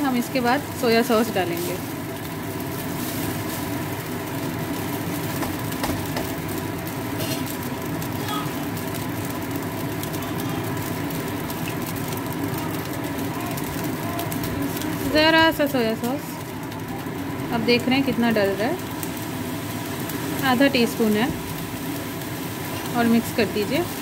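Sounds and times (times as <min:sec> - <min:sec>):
steady mechanical hum: 0:00.0 - 0:24.0
spoon knocking in pan: 0:05.3 - 0:06.4.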